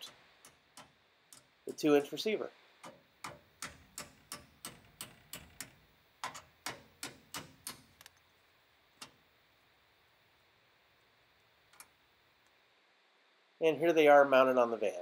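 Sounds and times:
hand ratchet clicking: 0.0 - 1.5, 2.8 - 8.2.

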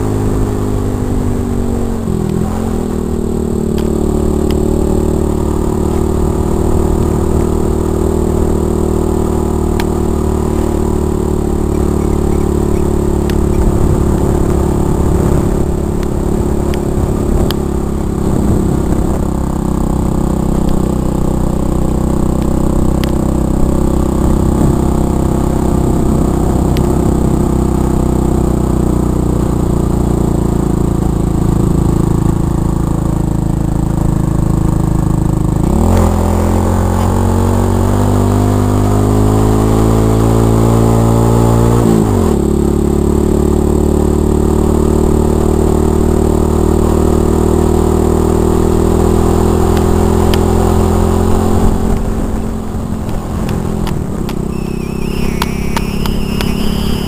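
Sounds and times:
motorbike engine running: 0.0 - 37.5, 42.0 - 57.0.

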